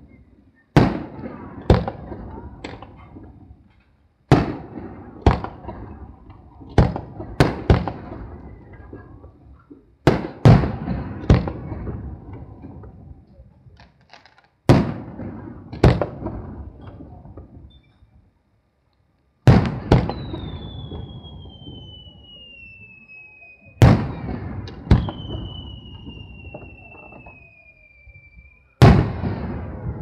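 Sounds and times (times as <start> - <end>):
firework shells booming: 0.7 - 13.0, 14.1 - 17.8, 19.5 - 22.4, 23.7 - 27.5, 28.8 - 30.0.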